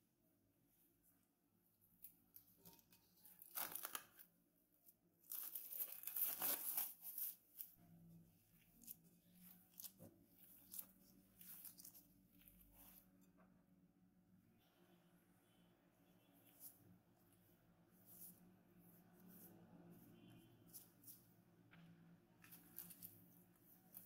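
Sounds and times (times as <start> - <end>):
plastic glove crinkling: 2.0 - 4.3, 5.2 - 7.8, 8.5 - 13.0
cling film crinkling and tearing: 2.6 - 4.3, 5.2 - 7.7.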